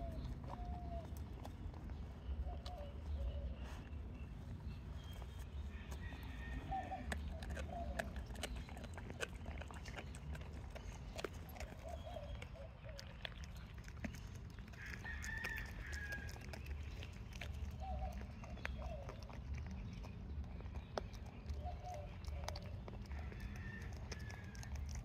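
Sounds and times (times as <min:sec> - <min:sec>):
dogs chewing bones: 0:00.0 - 0:25.0
bird calling: 0:02.2 - 0:04.0.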